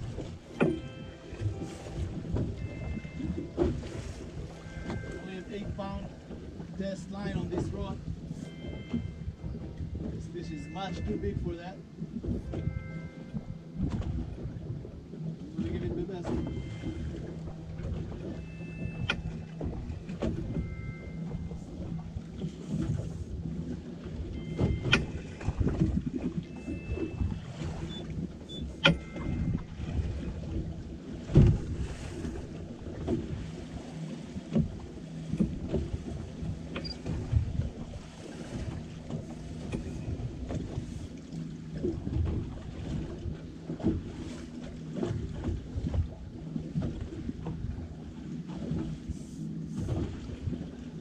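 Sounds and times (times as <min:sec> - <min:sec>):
water washing: 0:00.0 - 0:12.8
boat motor hum: 0:00.0 - 0:51.0
wind: 0:00.0 - 0:51.0.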